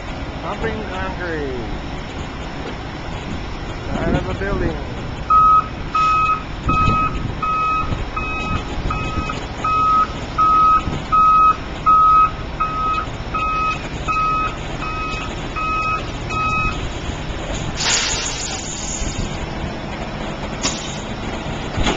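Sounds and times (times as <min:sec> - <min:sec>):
diesel engine running: 0:00.0 - 0:21.9
reversing alarm beeping: 0:05.3 - 0:16.8.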